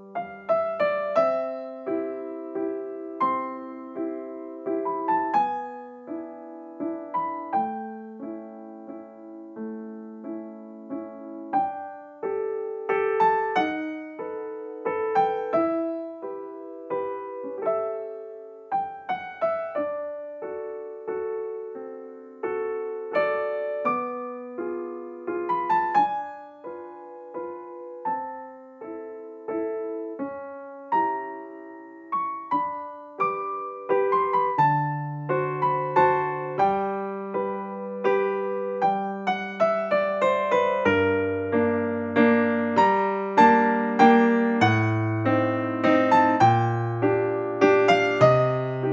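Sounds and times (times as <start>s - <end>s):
slow gentle piano music: 0.0s - 48.9s.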